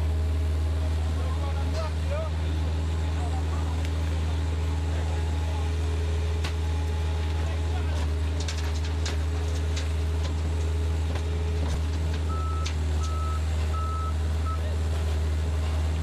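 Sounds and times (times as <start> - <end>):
heavy vehicle engine running: 0.0 - 16.0
reversing alarm beeps: 12.3 - 14.6.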